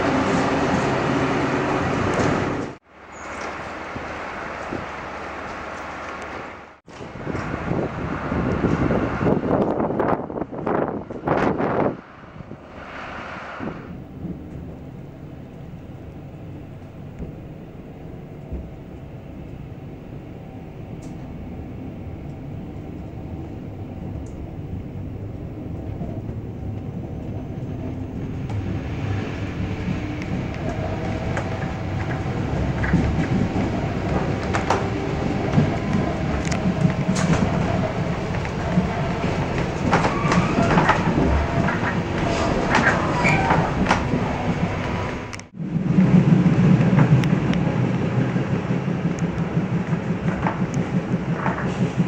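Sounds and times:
train rumble: 0:00.0 - 0:52.0
wheels clicking over rail joints: 0:27.8 - 0:52.0.

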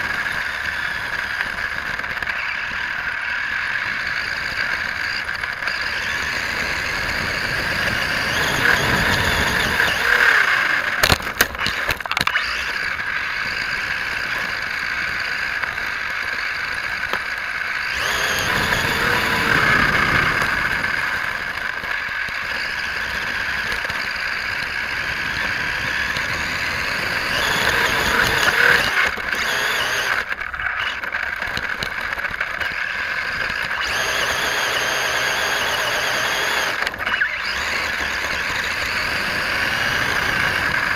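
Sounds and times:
rc truck motor running: 0:00.0 - 0:40.9
sharp clicks: 0:07.8 - 0:40.9.

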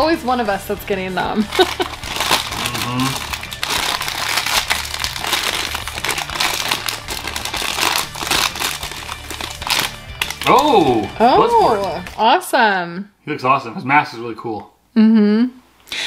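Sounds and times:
foil bag crinkling: 0:01.4 - 0:12.2.

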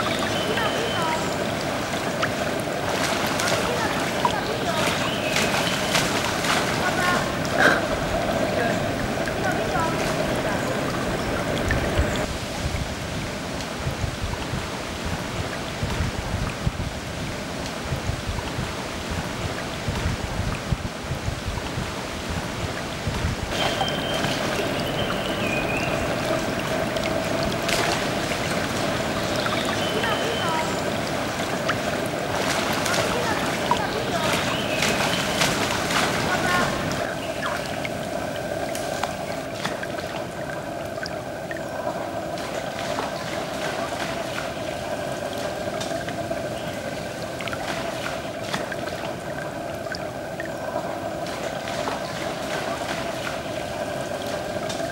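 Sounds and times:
monkeys splashing in water: 0:00.0 - 0:12.3, 0:23.5 - 0:54.9
flowing and dripping water: 0:00.0 - 0:54.9.

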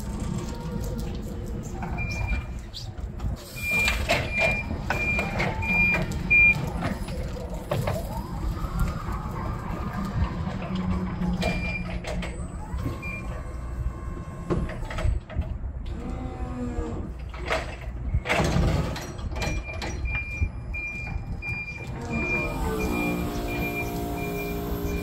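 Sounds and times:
forklift engine rumble: 0:00.0 - 0:25.0
clunks of forks and pallets: 0:03.2 - 0:08.1, 0:17.2 - 0:24.0
forklift warning beeper: 0:03.5 - 0:06.7, 0:19.5 - 0:25.0.

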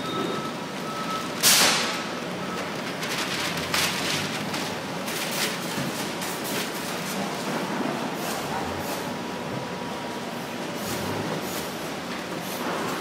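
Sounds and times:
packing paper flapping and crumpling: 0:01.4 - 0:07.3
crackling paper rustles: 0:02.5 - 0:07.2
rushing swish of paper: 0:02.9 - 0:06.9.

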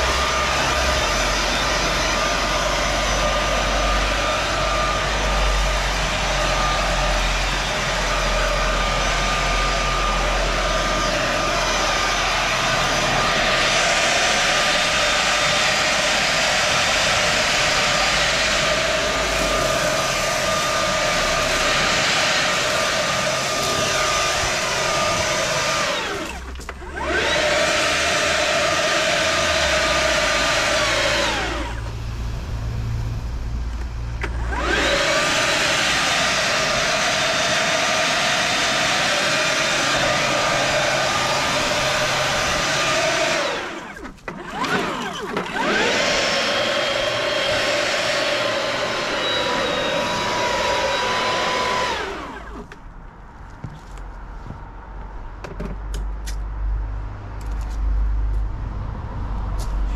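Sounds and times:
leaf blower running: 0:00.0 - 0:52.8
low rumble: 0:31.3 - 0:34.7.

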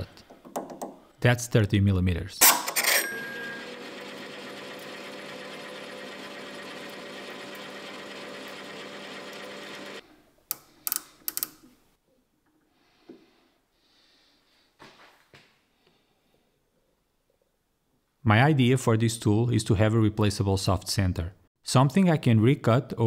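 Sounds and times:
metal lathe humming and whining: 0:03.5 - 0:10.0
sharp metallic clicks: 0:10.5 - 0:11.6.

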